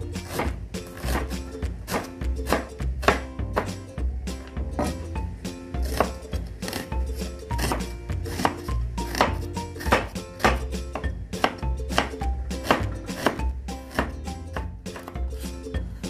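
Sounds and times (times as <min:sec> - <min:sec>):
background music: 0:00.0 - 0:16.0
knife chopping on cutting board: 0:00.2 - 0:03.8, 0:05.8 - 0:15.2.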